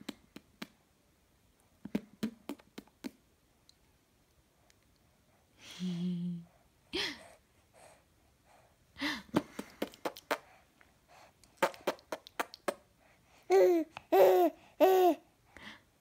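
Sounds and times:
baby cooing: 13.5 - 15.2.

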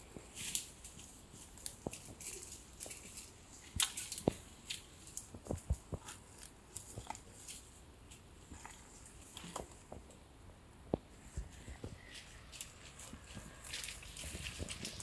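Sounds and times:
goat tearing grass: 11.3 - 15.0.

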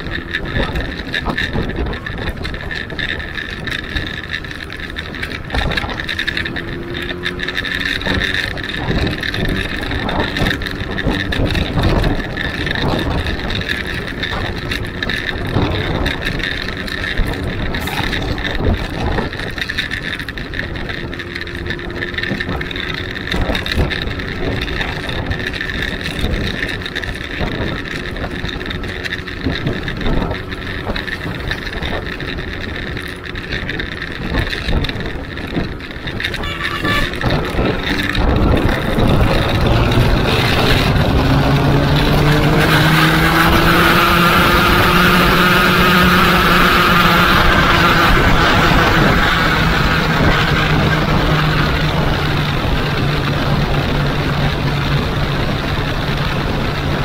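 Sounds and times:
motorcycle engine running: 0.0 - 57.0
wind rushing over microphone: 0.0 - 57.0.

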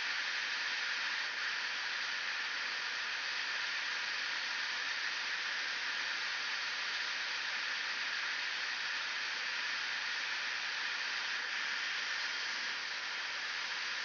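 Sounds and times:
hot air station hissing: 0.8 - 14.0.

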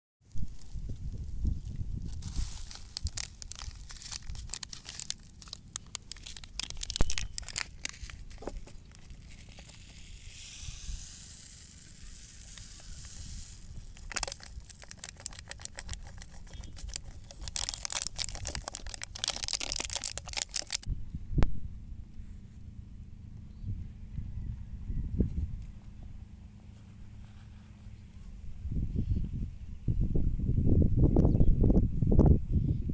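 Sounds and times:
foil sachets crinkling and tearing: 1.6 - 20.9
powder pouring hiss: 2.3 - 20.9.

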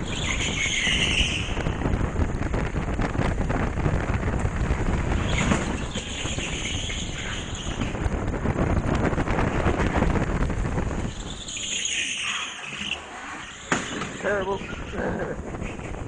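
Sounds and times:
hissing tyre squeal: 0.0 - 1.6, 5.3 - 8.0, 11.1 - 15.0
go-kart engine: 0.0 - 16.0
tyre noise: 0.0 - 16.0.

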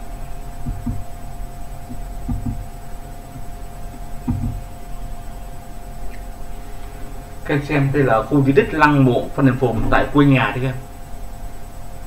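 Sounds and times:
soft low thumps: 0.0 - 7.3
electrical hum: 0.0 - 12.0.

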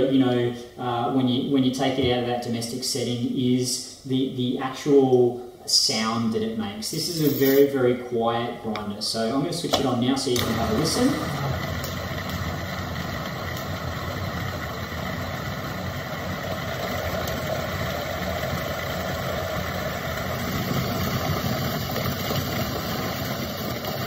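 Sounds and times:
coffee grinder grinding beans: 7.0 - 7.6, 10.4 - 24.0.

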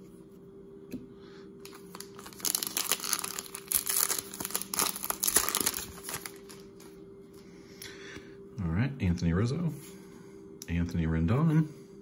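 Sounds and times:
wrapper being torn open: 1.6 - 6.9.

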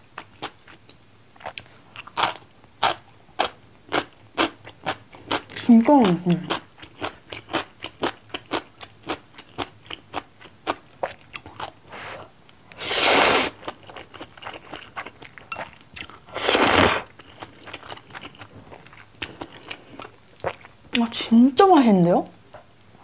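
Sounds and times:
slurping noodles: 12.0 - 13.6, 16.3 - 17.1
wet chewing: 12.7 - 20.8.

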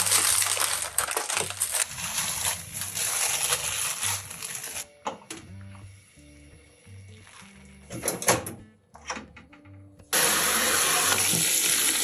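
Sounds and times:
plastic packaging crinkling: 0.0 - 4.9.

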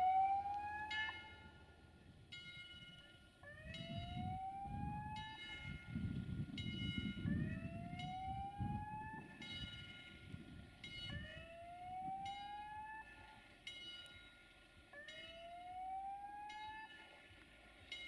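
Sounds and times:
whooping siren-like tone: 0.0 - 1.8, 3.4 - 6.2, 7.1 - 10.4, 11.0 - 13.4, 14.9 - 17.2.

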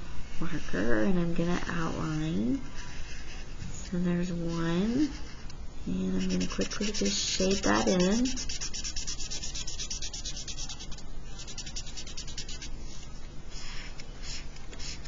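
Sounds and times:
felt-tip marker scratching paper: 1.7 - 3.6, 6.0 - 15.0.

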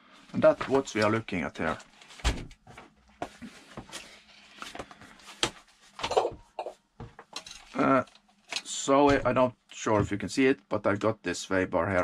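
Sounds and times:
paper rustling: 0.4 - 6.0.

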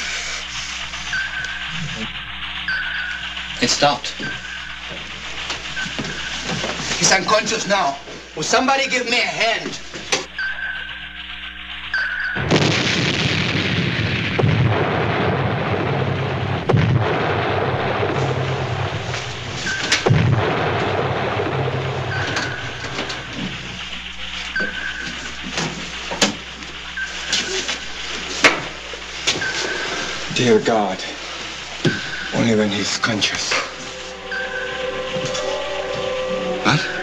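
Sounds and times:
underwater explosions booming: 12.4 - 37.0
short high tone: 33.0 - 37.0.

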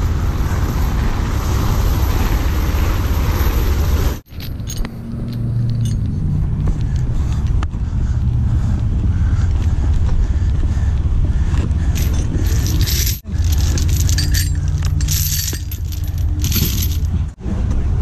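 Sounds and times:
chains clinking and rattling: 4.2 - 6.4, 11.9 - 17.4.

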